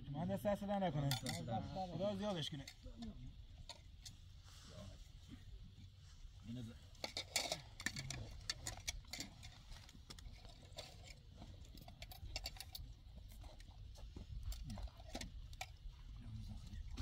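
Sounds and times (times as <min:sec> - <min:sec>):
cutlery clinking on plates: 0:01.1 - 0:01.5.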